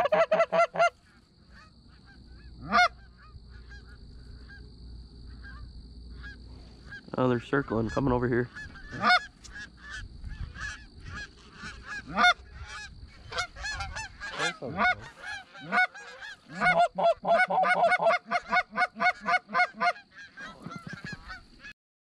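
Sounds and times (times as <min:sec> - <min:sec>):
geese honking: 0:00.0 - 0:21.8
fast clucking honks: 0:10.6 - 0:21.4.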